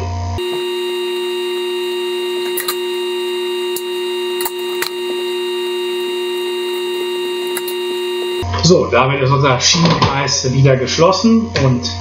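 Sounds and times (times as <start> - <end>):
loud steady hum: 0.4 - 8.4.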